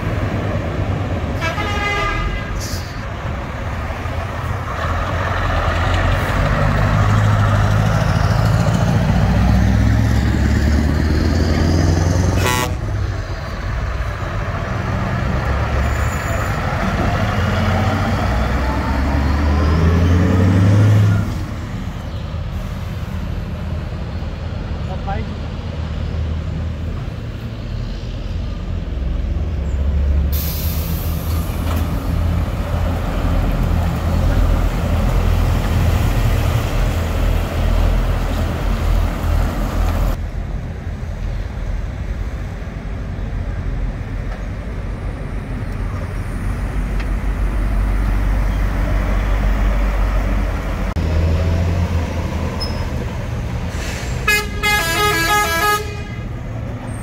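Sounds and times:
truck diesel engines rumbling: 0.0s - 57.0s
truck horn blasts: 1.4s - 2.6s, 12.3s - 12.9s, 54.2s - 56.4s.

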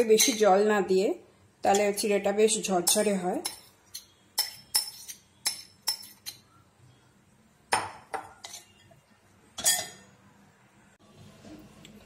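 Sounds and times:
steel spoon clinking on glass bowls: 0.1s - 0.6s, 2.8s - 6.4s, 9.6s - 10.1s.

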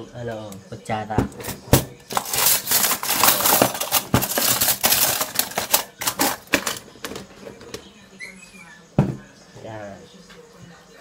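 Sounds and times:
cutlery clattering into holder: 1.4s - 7.2s.

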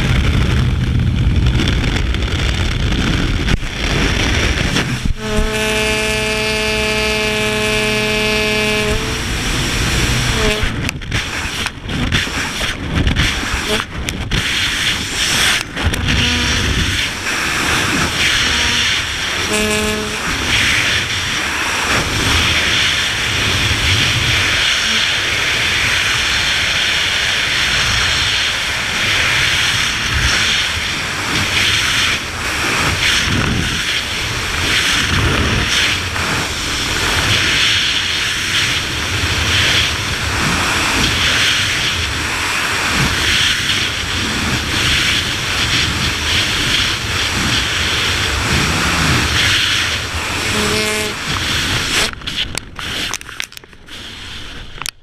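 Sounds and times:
low rumble: 0.0s - 11.4s, 15.2s - 21.4s
wind rushing over microphone: 0.0s - 55.0s.

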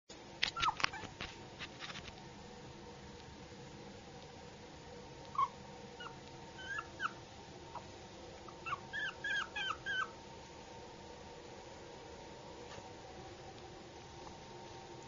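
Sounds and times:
puppy whimpering: 0.5s - 1.1s, 5.3s - 7.9s, 8.5s - 10.1s.

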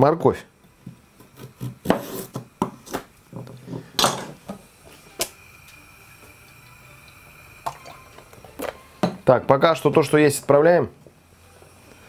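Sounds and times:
knife chopping on plastic board: 1.4s - 2.8s
faint steady high tone: 5.7s - 9.1s.

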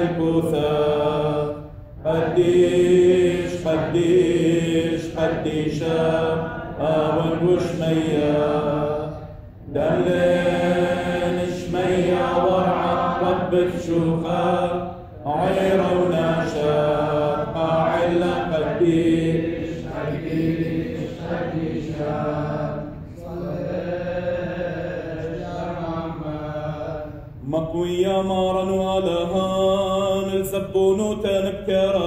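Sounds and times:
clergy chanting liturgy: 0.0s - 32.0s.

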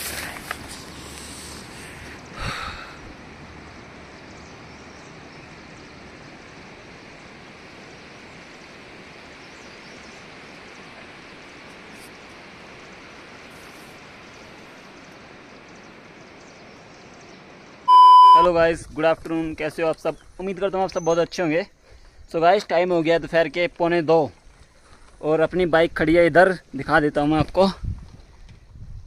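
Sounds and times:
steady rushing noise: 0.0s - 17.8s.

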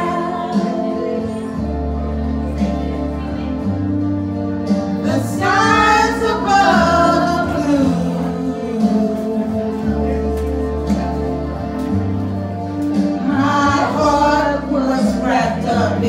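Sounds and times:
woman singing into microphone: 0.0s - 1.9s, 5.0s - 11.0s, 13.2s - 16.0s
amplified backing music: 0.0s - 16.0s.

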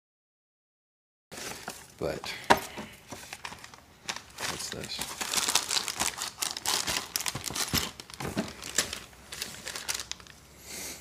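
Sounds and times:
packing paper rustling: 1.3s - 2.2s, 2.8s - 10.4s
plastic bag crinkling: 3.2s - 10.5s.

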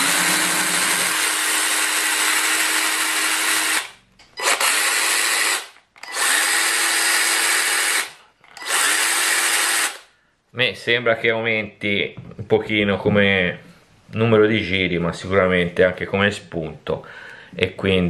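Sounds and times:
electric chainsaw whirring: 0.0s - 10.1s.

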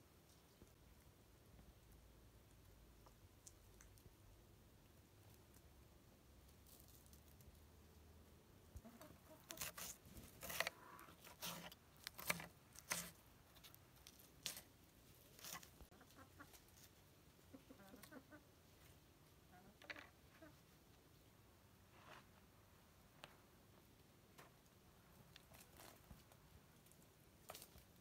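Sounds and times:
chickens clucking: 8.8s - 10.0s, 15.9s - 18.5s, 19.4s - 20.8s.

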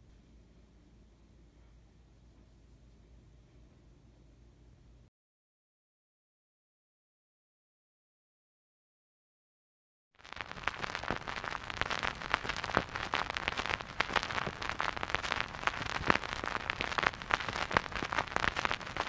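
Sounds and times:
crackling clicks and pops: 10.2s - 19.0s
dense hiss: 10.3s - 19.0s.

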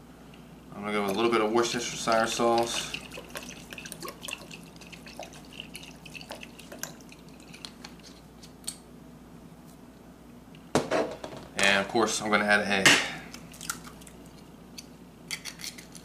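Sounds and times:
sauce dripping and splatting: 1.1s - 8.1s.

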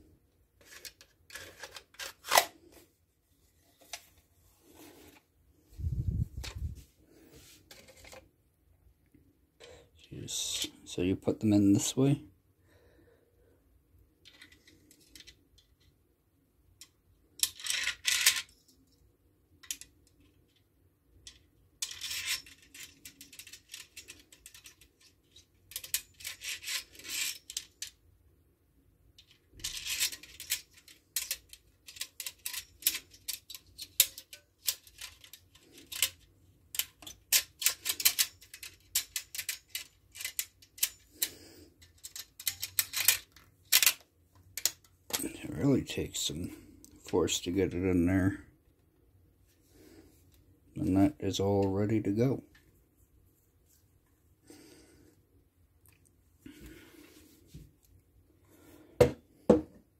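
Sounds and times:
metal pegs rubbing and rattling: 0.6s - 2.8s, 7.4s - 8.3s, 17.3s - 19.0s, 21.2s - 28.0s, 29.2s - 46.3s.

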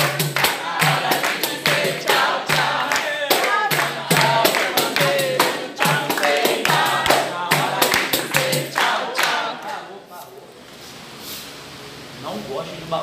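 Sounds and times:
tambourine beat: 0.0s - 8.8s
hand clapping: 0.0s - 9.8s
group singing: 0.0s - 10.2s.

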